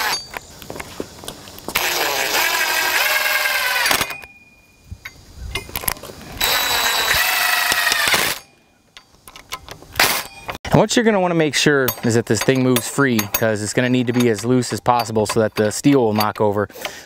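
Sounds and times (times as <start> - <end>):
impact driver driving screws: 6.4 - 8.4.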